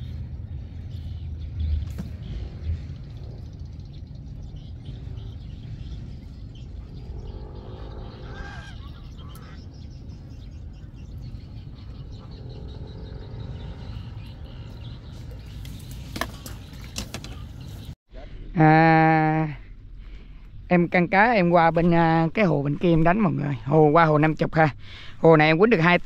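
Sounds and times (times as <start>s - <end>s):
faint distant calls: 0.0s - 18.0s.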